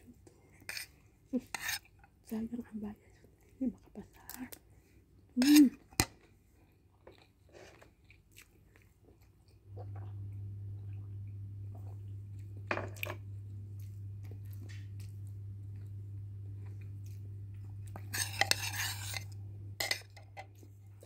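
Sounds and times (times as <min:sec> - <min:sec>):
soft chewing: 0:00.0 - 0:21.0
steady low hum: 0:09.6 - 0:21.0
drinking from a mug: 0:09.7 - 0:12.6.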